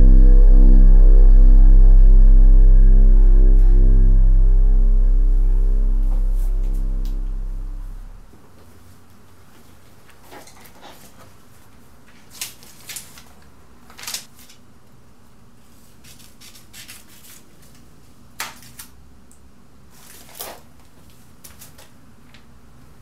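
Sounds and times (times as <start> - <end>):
faint low hum: 0.0 - 9.2
magazine pages rustling: 10.0 - 14.6, 15.9 - 18.9.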